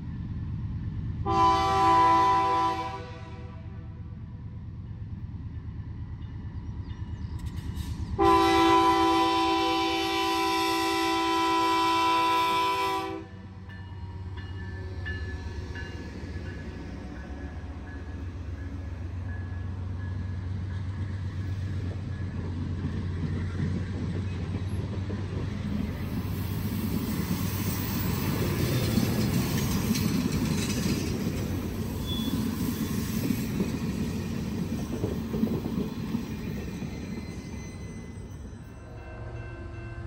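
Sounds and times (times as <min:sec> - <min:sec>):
train wheels rumbling on rails: 0:04.1 - 0:40.0
wheels clicking over rail joints: 0:21.6 - 0:37.4.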